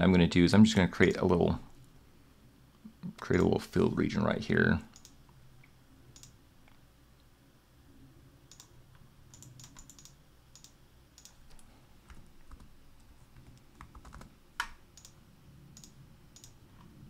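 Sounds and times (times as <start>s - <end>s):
mouse clicks: 6.2s - 6.4s, 8.5s - 8.7s, 9.3s - 11.7s, 14.6s - 15.2s, 15.8s - 16.9s
keyboard keystrokes: 9.3s - 12.7s, 13.4s - 15.2s.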